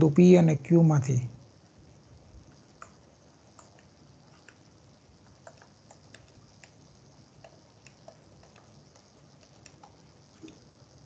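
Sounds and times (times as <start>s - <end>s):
low steady hiss: 0.0s - 11.0s
stylus tapping tablet screen: 7.4s - 10.6s.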